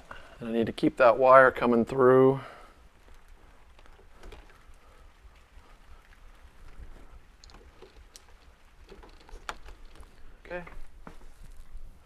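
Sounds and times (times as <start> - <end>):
faint clicks and light taps: 2.9 - 11.8.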